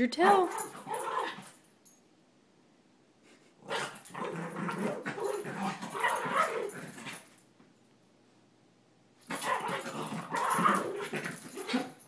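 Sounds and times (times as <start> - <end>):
dog growling: 3.6 - 7.2, 9.3 - 12.0.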